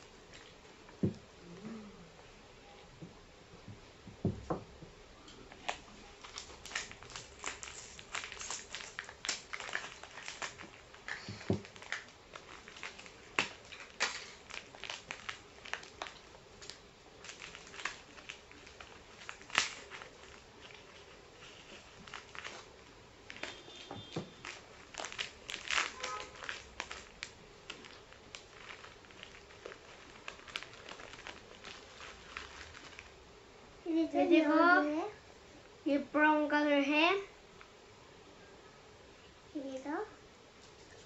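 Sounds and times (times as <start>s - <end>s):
plastic wrapper crinkling: 5.4s - 33.2s.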